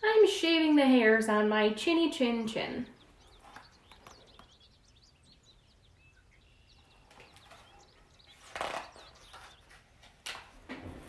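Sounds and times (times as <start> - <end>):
faint high chirping: 1.8 - 9.8.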